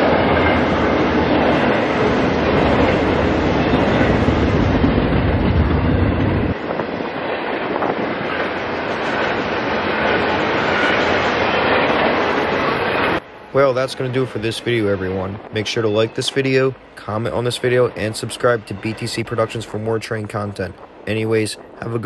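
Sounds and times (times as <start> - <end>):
deep rumble: 0.0 - 13.2
train wheels on rail: 0.0 - 22.0.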